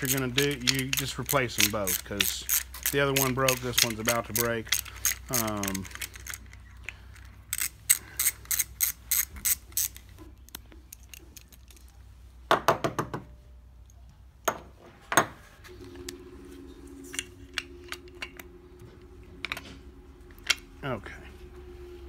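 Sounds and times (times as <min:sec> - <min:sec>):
hand ratchet clicking: 0:00.0 - 0:06.5, 0:07.5 - 0:10.0
steady low hum: 0:13.3 - 0:22.0.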